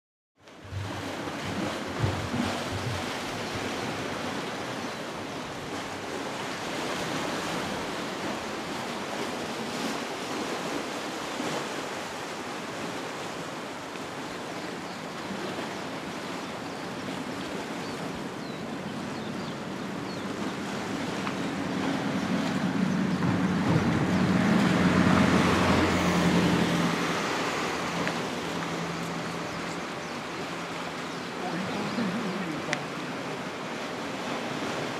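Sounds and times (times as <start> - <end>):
sea surf: 0.4 - 34.9
wind on microphone: 0.6 - 10.8, 16.9 - 31.0
low rumble: 22.2 - 29.9.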